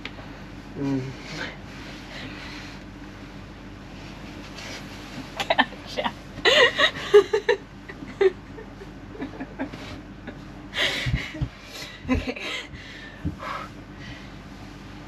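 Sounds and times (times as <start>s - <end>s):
soft laughter and giggling: 5.4s - 12.8s.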